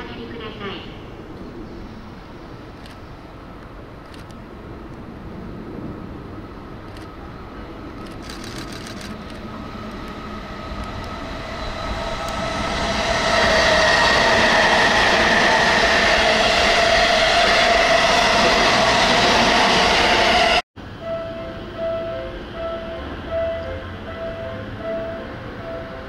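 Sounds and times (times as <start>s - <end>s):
electric train passing at speed: 0.0s - 26.0s
wheels rushing on rail: 1.2s - 26.0s
high steady whine: 8.0s - 26.0s.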